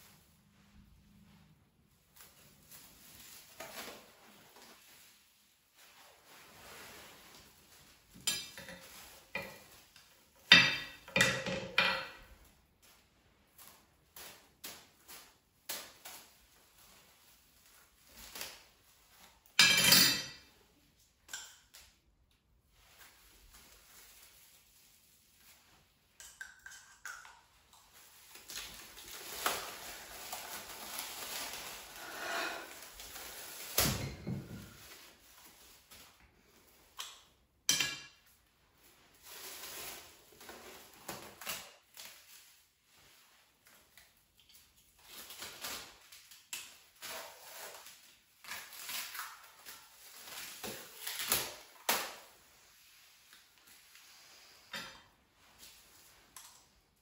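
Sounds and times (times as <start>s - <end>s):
cling film crinkling: 27.9s - 33.9s.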